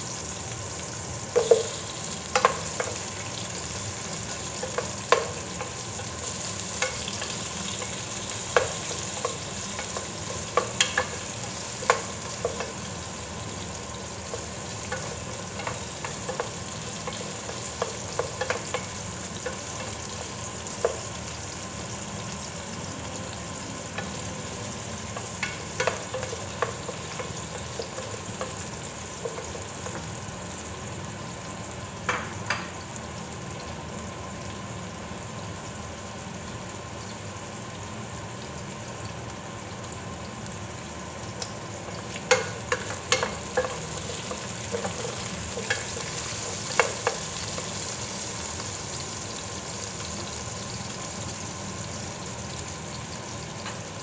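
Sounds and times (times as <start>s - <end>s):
onions sizzling in hot oil: 0.0s - 54.0s.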